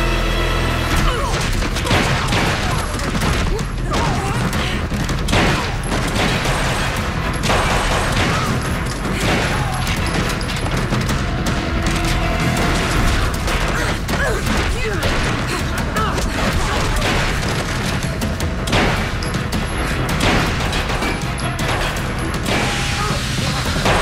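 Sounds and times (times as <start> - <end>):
tense orchestral music: 0.0 - 24.0.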